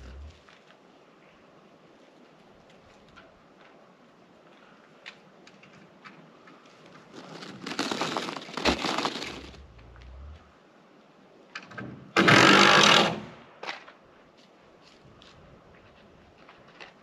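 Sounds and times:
turkey drumming hum: 0:00.0 - 0:00.4.

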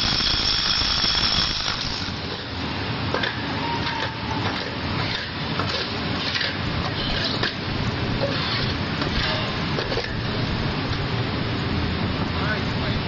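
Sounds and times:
steady background noise: 0:00.0 - 0:13.0
shovel scraping concrete rubble: 0:08.2 - 0:10.2.

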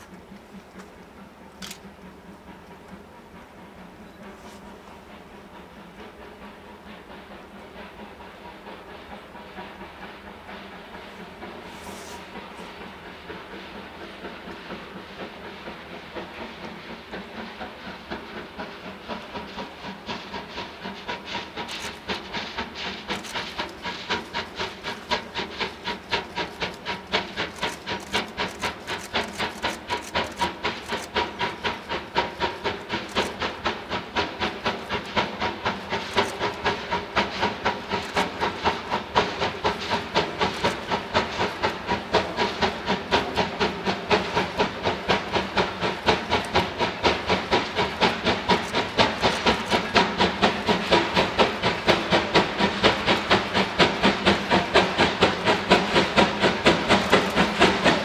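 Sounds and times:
hiss of steam: 0:00.0 - 0:58.0
steam locomotive chuffing: 0:00.0 - 0:58.0.

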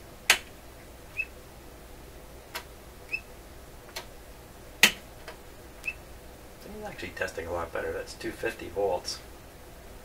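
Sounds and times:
faint high chirps: 0:01.1 - 0:01.4, 0:03.1 - 0:03.3.

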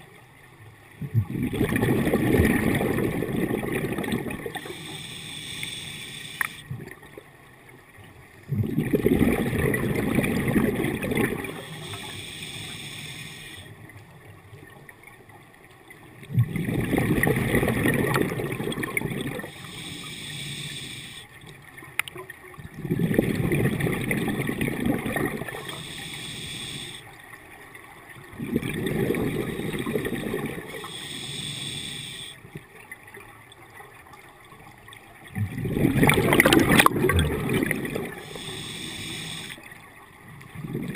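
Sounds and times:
gurgling exhaust bubbles: 0:01.0 - 0:04.7, 0:08.5 - 0:11.6, 0:16.3 - 0:19.5, 0:22.8 - 0:25.6, 0:28.4 - 0:30.8, 0:35.3 - 0:38.5
regulator inhale hiss: 0:04.5 - 0:06.6, 0:11.4 - 0:13.7, 0:19.4 - 0:21.3, 0:25.5 - 0:27.1, 0:30.6 - 0:32.4, 0:38.0 - 0:39.6.

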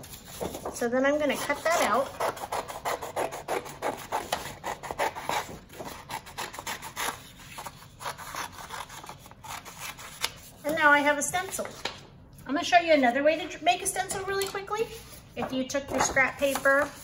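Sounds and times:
paper rustling: 0:00.0 - 0:00.8.

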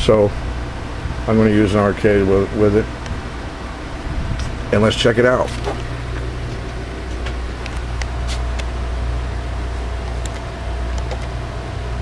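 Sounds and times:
low electrical hum: 0:00.0 - 0:12.0
light clicks: 0:10.0 - 0:11.4.

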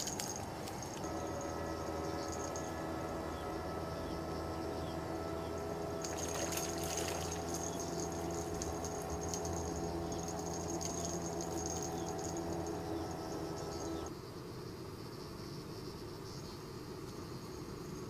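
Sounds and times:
water pouring from net: 0:06.0 - 0:08.9
fish splashing in water: 0:06.0 - 0:11.8.

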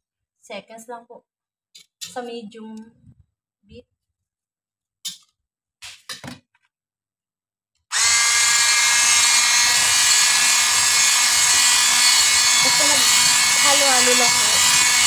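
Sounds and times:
electric hand mixer whirring: 0:07.9 - 0:15.0.

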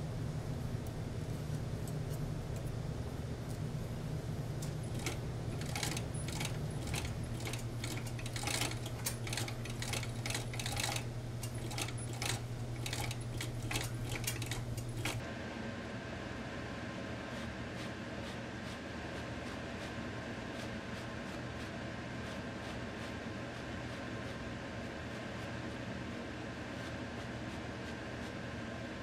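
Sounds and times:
sewing machine motor hum: 0:00.0 - 0:15.2
sewing machine clicking: 0:04.6 - 0:15.2.

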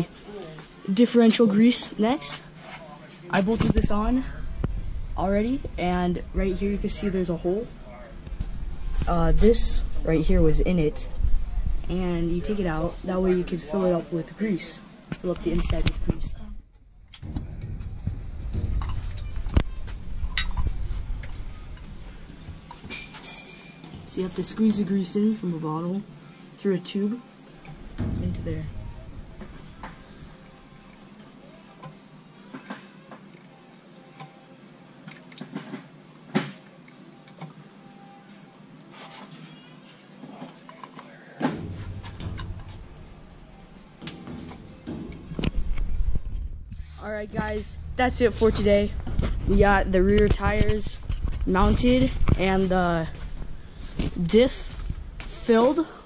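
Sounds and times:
low handling rumble: 0:03.6 - 0:13.5, 0:15.3 - 0:22.8, 0:27.8 - 0:30.4, 0:41.6 - 0:44.0, 0:44.6 - 0:55.6.

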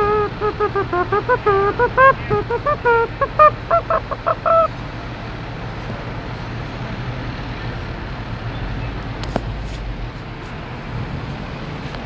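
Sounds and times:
diesel engine idling: 0:00.0 - 0:12.0
street noise: 0:00.0 - 0:12.0.

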